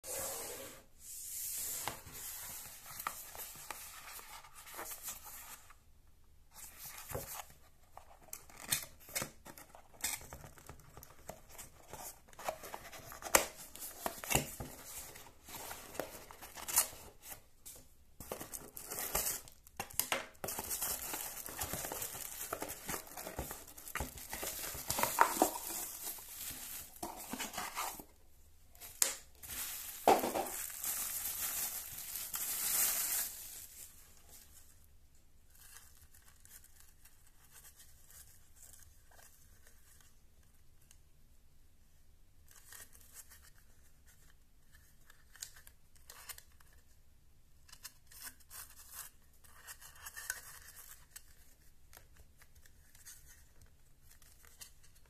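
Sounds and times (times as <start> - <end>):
cardboard packaging scrapes and taps: 17.7 - 28.1
plastic bag crinkling: 20.5 - 28.0, 29.3 - 33.9.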